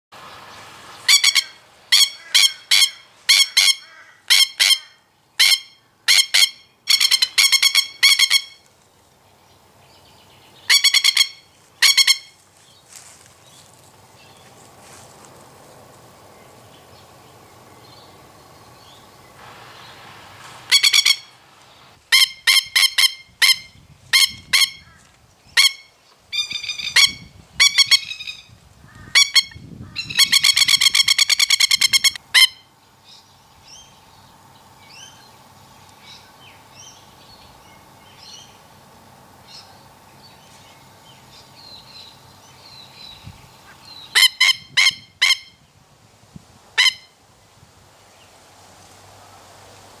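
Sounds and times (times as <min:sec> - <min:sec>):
lapwing sharp calls: 0:00.9 - 0:08.7, 0:10.5 - 0:14.6, 0:16.5 - 0:32.7, 0:39.4 - 0:45.7.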